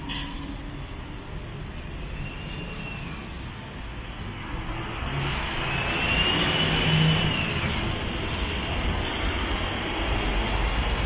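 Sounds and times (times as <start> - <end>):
tyres hissing on wet road: 4.8 - 11.0.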